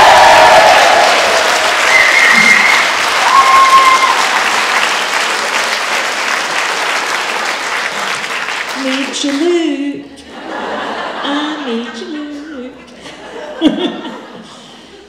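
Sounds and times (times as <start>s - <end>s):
high calls from crowd: 0.0s - 4.7s
audience applauding and cheering: 0.0s - 9.5s.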